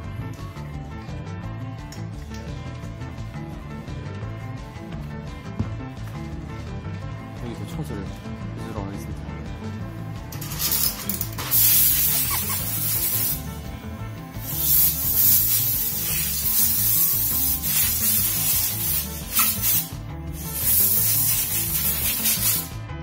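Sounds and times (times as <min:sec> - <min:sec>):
compressed air hissing: 0:10.4 - 0:22.8.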